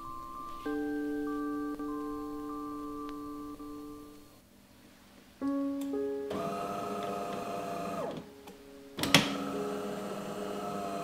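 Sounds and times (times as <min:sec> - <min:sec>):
espresso machine motor whirring: 0:06.3 - 0:08.2, 0:09.2 - 0:11.0.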